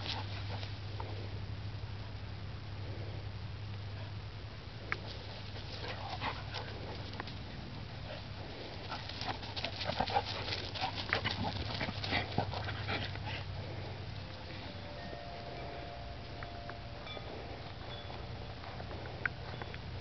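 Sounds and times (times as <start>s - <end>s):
dogs play-wrestling: 0.0s - 0.8s, 5.0s - 14.7s.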